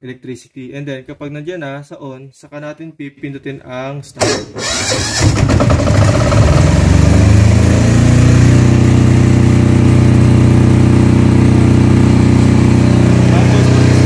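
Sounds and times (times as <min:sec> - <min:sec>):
electric starter: 0:04.2 - 0:14.0
diesel generator running: 0:04.6 - 0:14.0.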